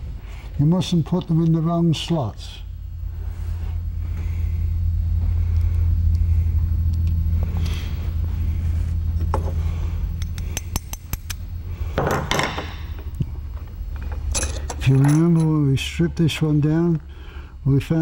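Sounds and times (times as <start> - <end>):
steady low hum: 0.0 - 18.0
steel parts clicking and clinking: 14.0 - 15.6.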